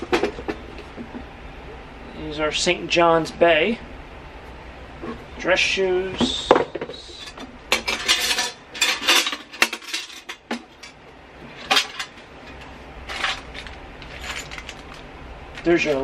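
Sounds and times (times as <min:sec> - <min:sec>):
coins rattling inside case: 0:13.1 - 0:15.0.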